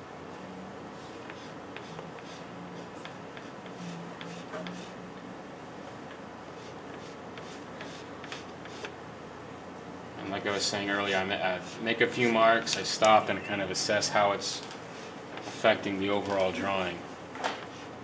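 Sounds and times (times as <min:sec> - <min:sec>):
pastel scratching on paper: 0:01.2 - 0:05.0, 0:06.6 - 0:08.9.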